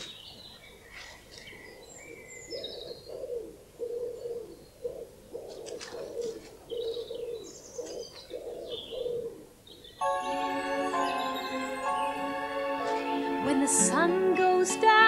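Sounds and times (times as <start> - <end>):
low cooing bird call: 0.0 - 10.0
small birds chirping: 0.0 - 10.1.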